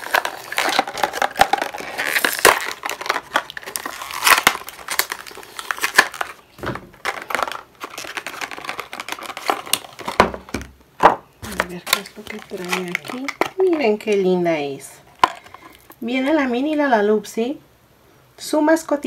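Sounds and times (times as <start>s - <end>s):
plastic packaging crinkling: 0.0s - 10.8s, 11.4s - 14.4s, 15.0s - 16.0s.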